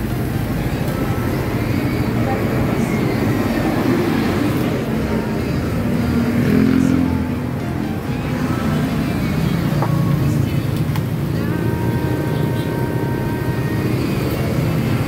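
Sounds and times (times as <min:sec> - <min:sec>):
loud vehicle passing: 0:00.0 - 0:10.7
road traffic rumble: 0:00.0 - 0:15.0.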